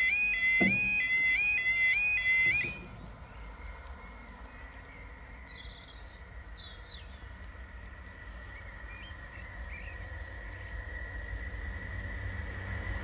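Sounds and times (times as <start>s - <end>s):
level crossing alarm tone: 0.0s - 2.9s
birds chirping: 0.0s - 7.3s
low rumble of train: 0.0s - 13.0s.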